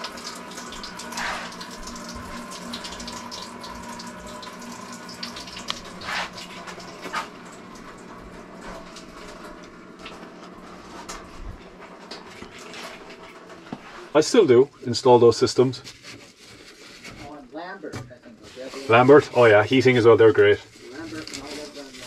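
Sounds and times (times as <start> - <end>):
water running from tap: 0.0 - 17.2, 18.8 - 22.0.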